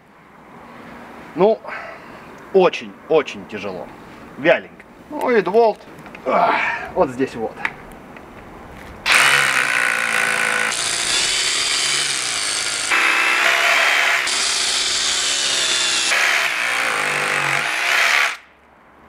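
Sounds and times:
rotary hammer drilling into concrete: 9.1 - 18.5.

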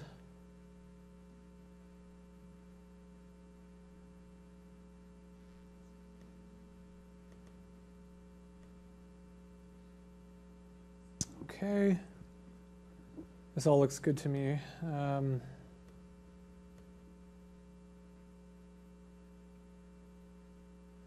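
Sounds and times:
electrical mains hum: 0.0 - 21.0.

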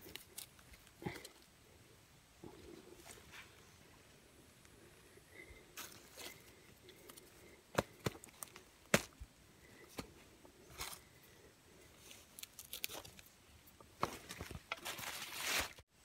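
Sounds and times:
dry leaves and twigs crackling: 0.0 - 1.5, 4.4 - 15.8
leaves rustling: 10.7 - 15.8.

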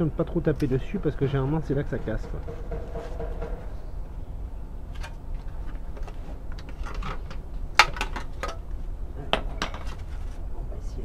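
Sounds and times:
hammer tapping sheet metal: 1.6 - 3.9.

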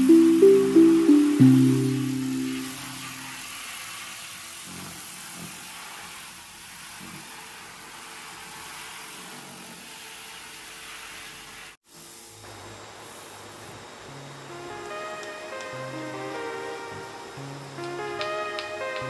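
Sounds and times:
pressure washer spray hissing: 13.0 - 13.7.

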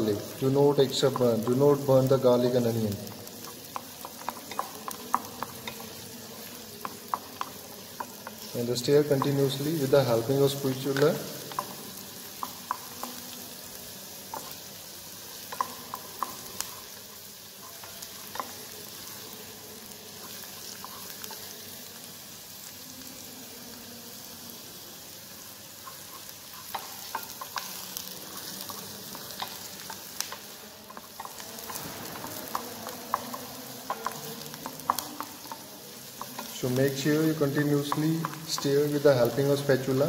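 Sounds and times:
wooden spatula stirring: 0.0 - 21.8, 25.2 - 40.0
onion and garlic sizzling in oil: 0.0 - 40.0.

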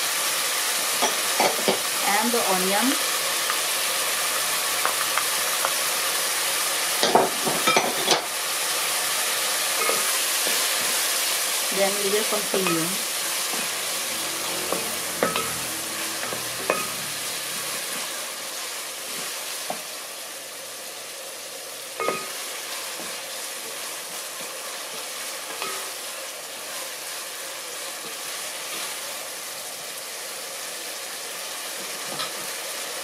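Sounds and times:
meat sizzling in oil: 0.0 - 33.0
wooden spatula scraping a pot: 13.2 - 18.1.

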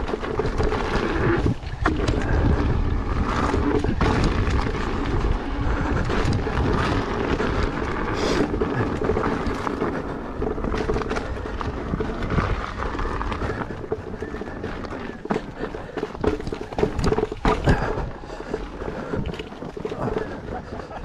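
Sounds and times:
electric unicycle rumbling on dirt: 0.0 - 21.0
wind buffeting microphone: 0.0 - 21.0
small knocks and rattles: 13.1 - 20.4.

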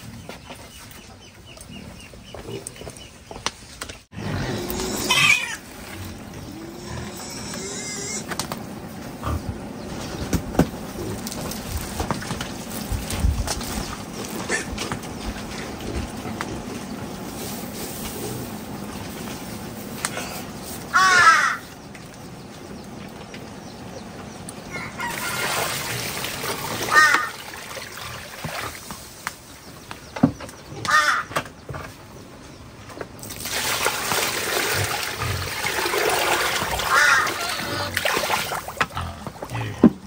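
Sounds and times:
harsh bird calls: 20.1 - 25.9, 29.4 - 32.8.

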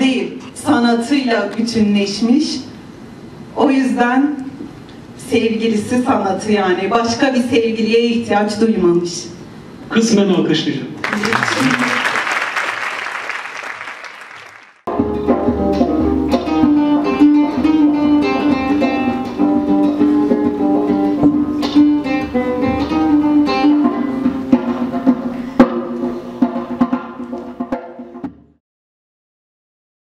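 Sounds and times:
applause: 11.0 - 14.9
acoustic guitar music: 14.9 - 28.2
sharp drum strikes: 21.2 - 28.6.

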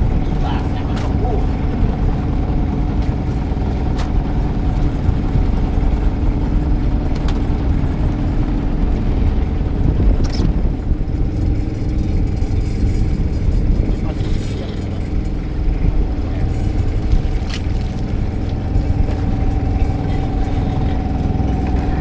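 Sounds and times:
boat engine rumbling: 0.0 - 22.0.

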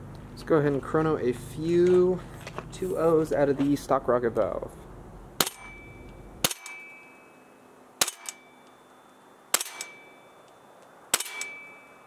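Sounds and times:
airsoft rifle shot crack: 8.0 - 8.4, 9.5 - 10.0, 11.1 - 11.6.

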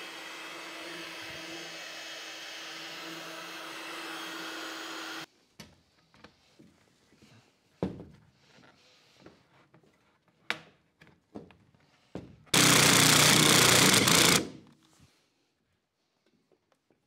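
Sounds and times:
cordless drill running: 0.0 - 5.3, 12.6 - 14.6.

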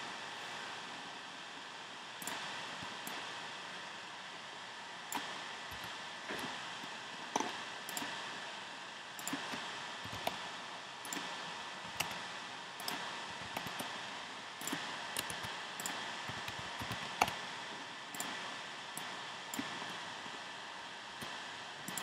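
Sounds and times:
steady hiss: 0.0 - 22.0
computer mouse clicks: 2.2 - 3.3, 5.1 - 6.6, 7.3 - 8.2, 9.2 - 10.4, 11.0 - 12.2, 12.8 - 13.9, 14.6 - 17.4, 18.1 - 18.4, 19.0 - 20.0, 21.2 - 22.0.

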